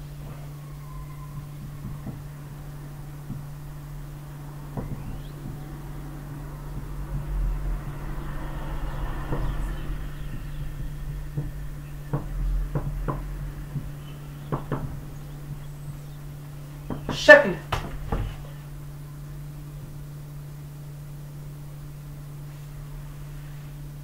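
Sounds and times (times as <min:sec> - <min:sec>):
low electrical hum: 0:00.0 - 0:24.0
marker tapping on whiteboard: 0:12.1 - 0:15.0.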